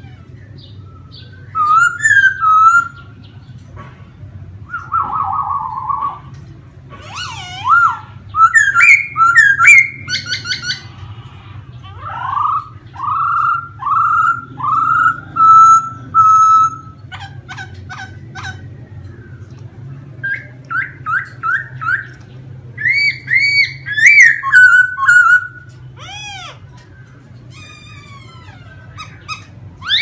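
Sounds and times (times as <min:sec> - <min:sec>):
bird whistling song: 0:00.0 - 0:03.1, 0:04.6 - 0:06.3, 0:07.1 - 0:10.9, 0:12.1 - 0:18.6, 0:20.2 - 0:26.5, 0:27.5 - 0:30.0.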